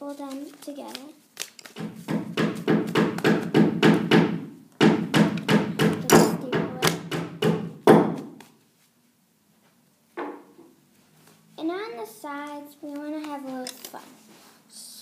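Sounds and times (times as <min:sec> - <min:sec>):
sharp thumps and knocks: 0:01.8 - 0:08.5.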